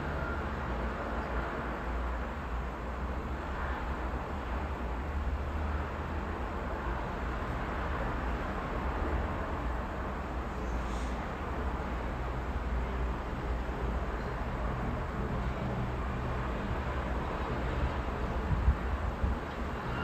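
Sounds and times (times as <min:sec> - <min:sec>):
road traffic passing: 0:00.0 - 0:20.0
strong wind blowing: 0:18.4 - 0:20.0.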